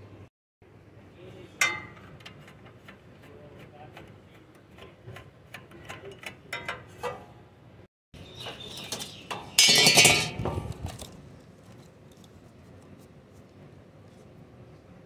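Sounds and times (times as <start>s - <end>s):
metal cover rattling clatter: 1.6s - 3.0s, 8.9s - 11.0s.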